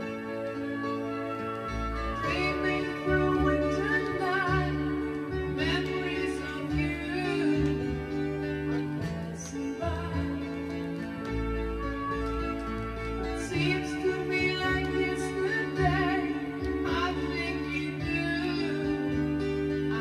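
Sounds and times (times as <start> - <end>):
instrumental backing: 0.0 - 20.0
woman singing: 2.0 - 11.8, 13.2 - 20.0.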